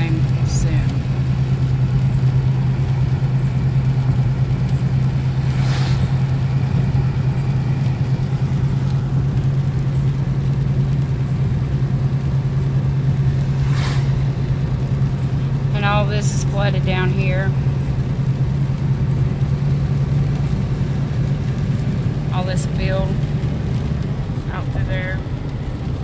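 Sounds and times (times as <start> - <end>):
engine and tyre drone: 0.0 - 26.0
tyre swish on wet road: 0.8 - 10.6, 12.3 - 15.8.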